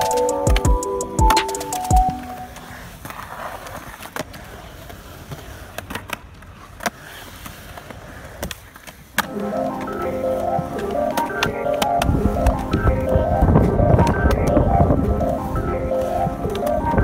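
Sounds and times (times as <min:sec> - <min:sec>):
music: 0:00.0 - 0:02.6, 0:09.3 - 0:17.0
skateboard wheels rolling on concrete: 0:00.0 - 0:17.0.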